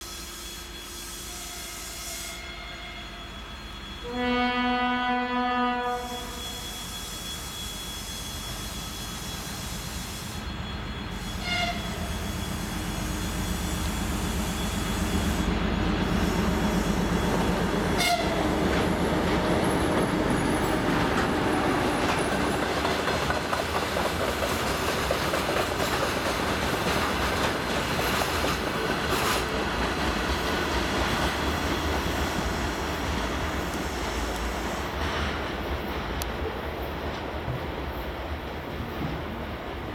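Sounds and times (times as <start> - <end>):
diesel locomotive engine drone: 0.0 - 39.9
train wagons rumbling past: 10.5 - 39.9
wheels clacking over rail joints: 18.0 - 32.2.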